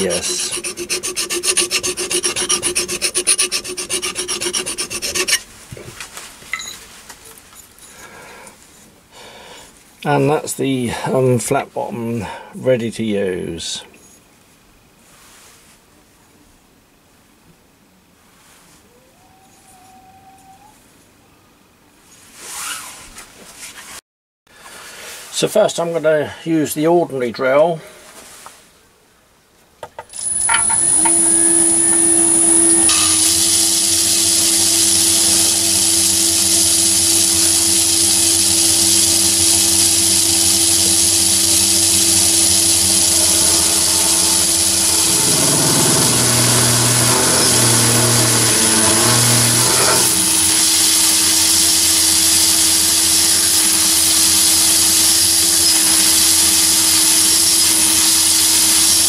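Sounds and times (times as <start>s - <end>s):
drill cutting into workpiece: 0.0s - 5.4s, 30.1s - 59.0s
lathe running with high whine: 0.0s - 5.4s, 30.1s - 59.0s.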